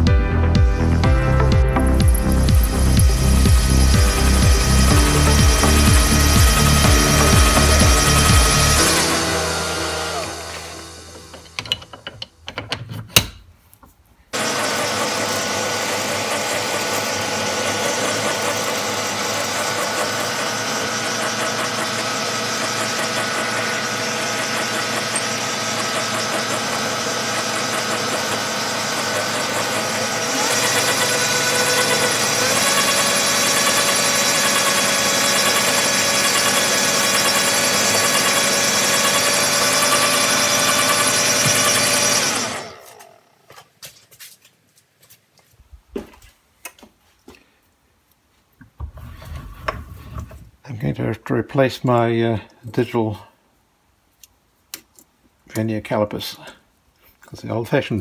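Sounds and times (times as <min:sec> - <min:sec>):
lathe motor whining: 0:01.6 - 0:12.2, 0:14.4 - 0:43.4.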